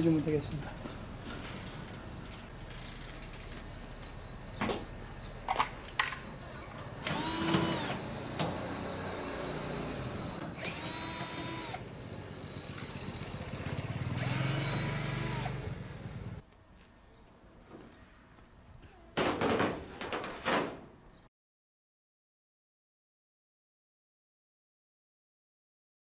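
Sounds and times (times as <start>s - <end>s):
cordless drill whirring: 7.0s - 8.0s, 9.9s - 11.8s, 14.2s - 15.5s.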